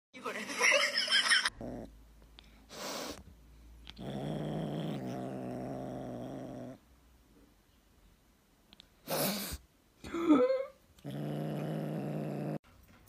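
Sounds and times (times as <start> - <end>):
kitten rumbling in throat: 3.9 - 6.8.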